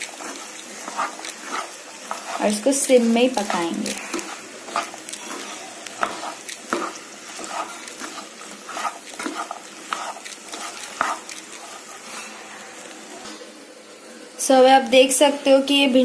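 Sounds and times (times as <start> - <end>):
spatula scraping a pan: 0.0 - 12.8
faint frying sizzle: 0.0 - 16.0.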